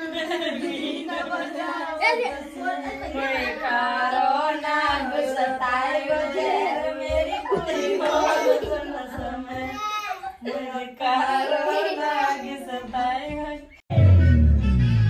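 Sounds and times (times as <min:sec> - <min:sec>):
loud music with heavy bass: 0:13.9 - 0:15.0.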